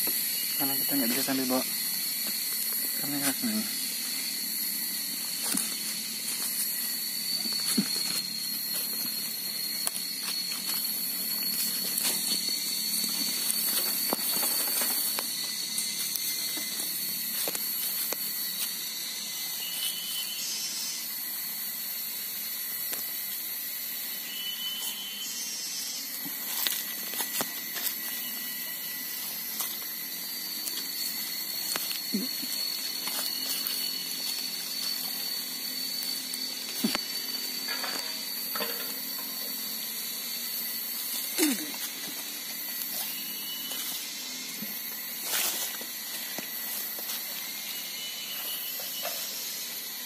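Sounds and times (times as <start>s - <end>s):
insects droning: 0.0s - 50.0s
footsteps on dry leaves: 0.1s - 18.9s, 26.0s - 38.4s, 40.9s - 48.6s.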